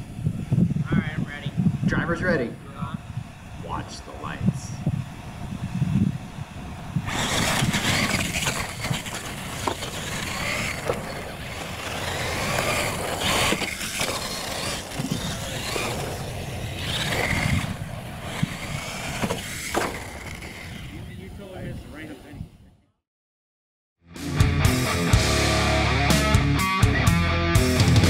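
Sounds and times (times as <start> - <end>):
toy truck motors whining: 0.0 - 21.2
tyres hissing on loose dirt: 6.1 - 20.2.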